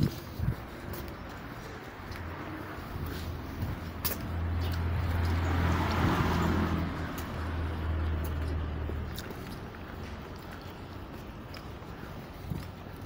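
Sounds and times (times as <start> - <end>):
car passing: 1.4 - 11.8.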